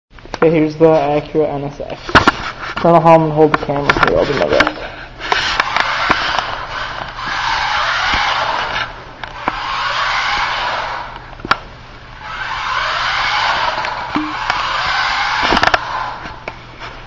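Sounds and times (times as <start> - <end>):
toy car tyres sliding on concrete: 5.2 - 11.2, 12.2 - 16.3.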